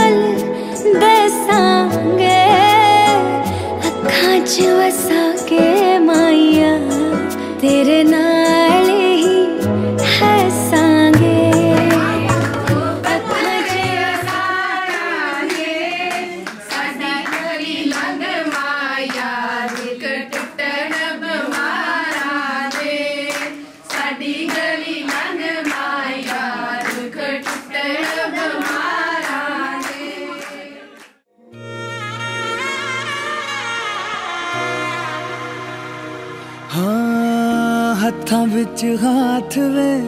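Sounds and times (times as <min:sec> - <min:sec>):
women singing folk song: 0:00.0 - 0:30.9
backing track with low bass: 0:09.7 - 0:14.3
hand clapping: 0:11.6 - 0:31.2.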